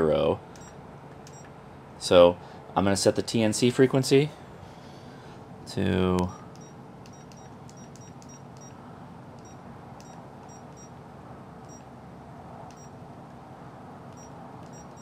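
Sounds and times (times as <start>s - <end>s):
faint steady hum: 0.0s - 15.0s
high-pitched key beeps: 0.6s - 1.5s, 6.6s - 8.8s, 9.4s - 10.9s, 14.2s - 15.0s.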